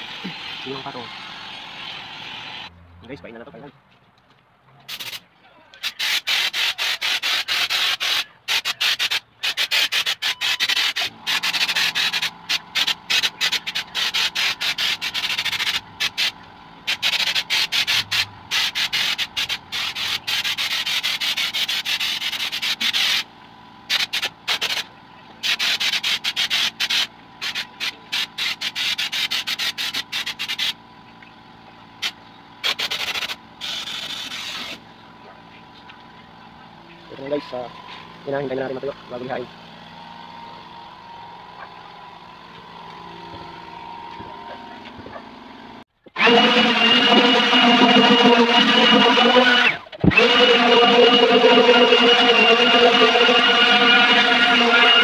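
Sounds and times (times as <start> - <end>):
spray gun hissing in bursts: 5.8 - 16.3, 16.9 - 23.3, 23.9 - 24.8, 25.4 - 30.8, 32.0 - 34.8.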